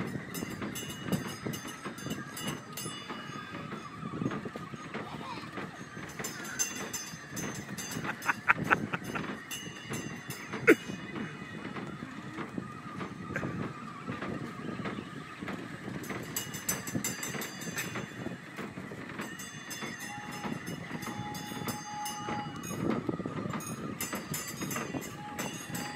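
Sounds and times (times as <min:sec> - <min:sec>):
carousel cars rumbling: 0:00.0 - 0:25.9
clicks and rattles: 0:00.0 - 0:25.9.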